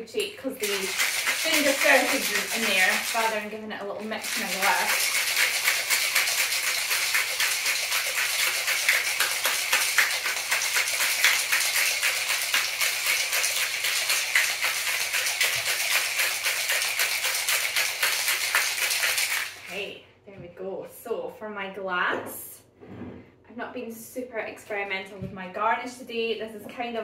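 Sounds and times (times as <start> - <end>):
ice rattling in cocktail shaker: 0.2 - 19.9.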